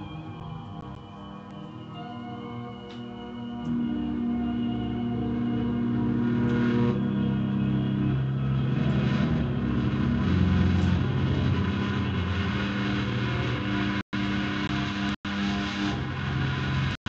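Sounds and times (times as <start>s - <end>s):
drone guitar notes: 0.0s - 17.0s.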